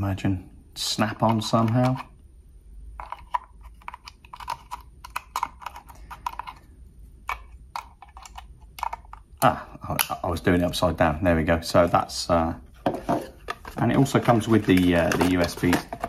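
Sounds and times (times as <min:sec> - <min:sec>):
plastic plug clicking and scraping: 0:01.2 - 0:02.2, 0:03.0 - 0:06.6, 0:07.2 - 0:09.2, 0:12.8 - 0:16.0.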